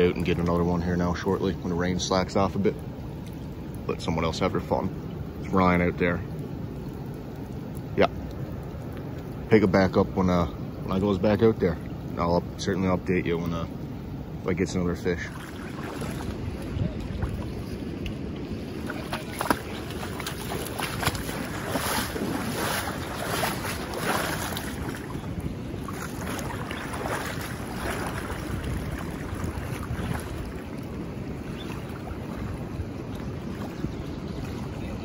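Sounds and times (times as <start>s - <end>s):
knocks or splashes: 15.2s - 34.8s
wind on microphone: 15.2s - 35.0s
river rushing over rapids: 18.5s - 32.8s.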